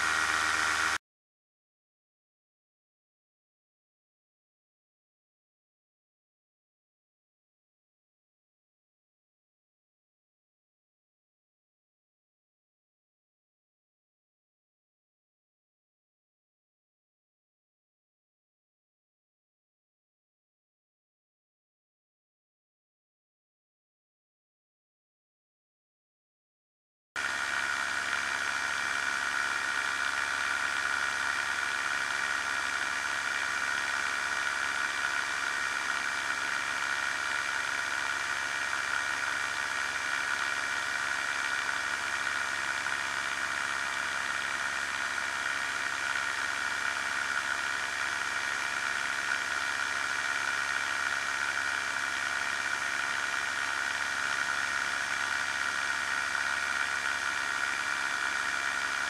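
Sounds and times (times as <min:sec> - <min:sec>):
aircraft engine running: 0:00.0 - 0:01.0.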